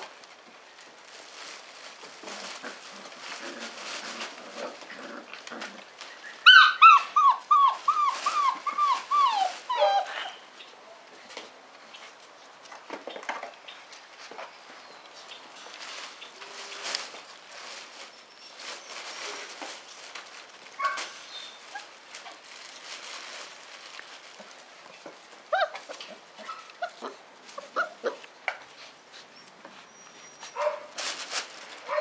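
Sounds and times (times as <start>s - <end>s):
scuffling and light knocks: 0.0s - 6.5s, 7.2s - 10.3s, 11.1s - 32.0s
puppies yipping and whimpering: 6.2s - 10.4s, 25.5s - 28.2s, 29.2s - 30.8s.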